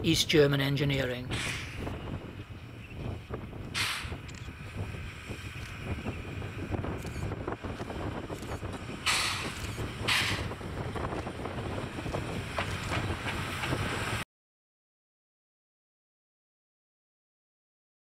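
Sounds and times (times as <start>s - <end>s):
steam train rumbling: 1.2s - 14.2s
loud steam hissing bursts: 3.8s - 4.2s, 9.0s - 10.7s.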